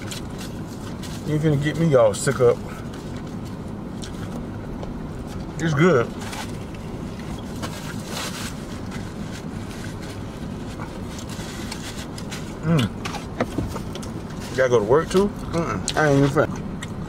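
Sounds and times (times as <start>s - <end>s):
paper napkin rustle: 0.0s - 1.9s, 6.0s - 15.2s
car cabin hum: 0.0s - 17.0s
person chewing: 3.9s - 4.5s, 15.3s - 17.0s.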